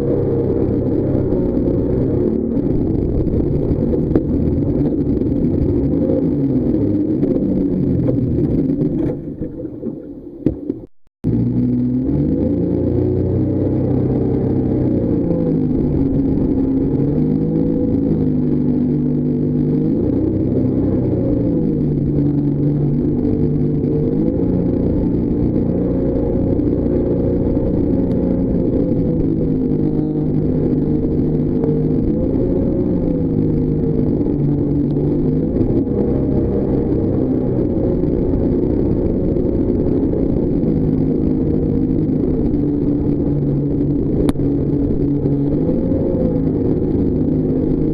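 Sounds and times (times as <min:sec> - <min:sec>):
jetboat engine running hard: 0:11.3 - 0:47.9.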